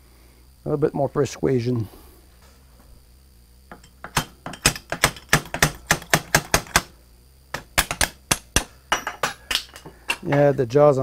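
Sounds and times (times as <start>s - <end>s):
small hammer tapping metal: 3.7s - 6.9s, 7.5s - 10.6s.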